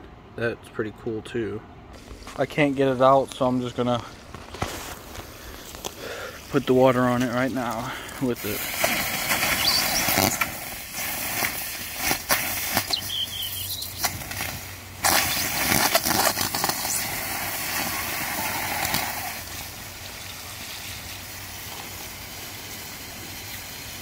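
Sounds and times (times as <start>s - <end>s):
sharp crackles: 1.9s - 24.0s
hose water splashing: 4.6s - 24.0s
water hissing on hot metal: 5.2s - 24.0s.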